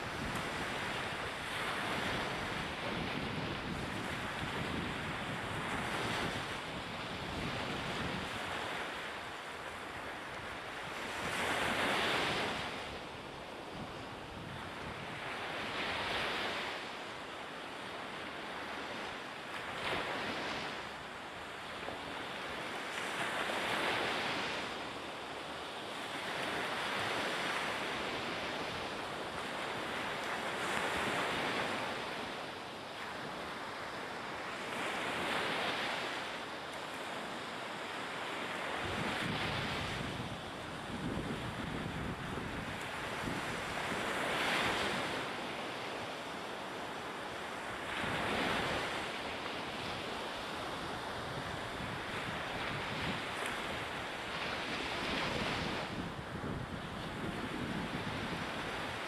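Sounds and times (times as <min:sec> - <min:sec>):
wind on microphone: 0:00.0 - 0:17.0, 0:38.4 - 0:45.9, 0:47.8 - 0:59.0
small waves breaking on shore: 0:00.0 - 0:59.0.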